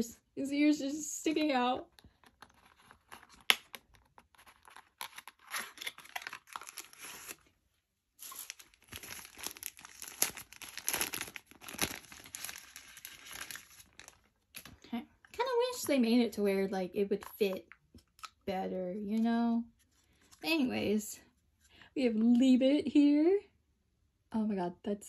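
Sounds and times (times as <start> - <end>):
tissue paper rustling and crinkling: 4.3 - 7.4, 8.2 - 14.7.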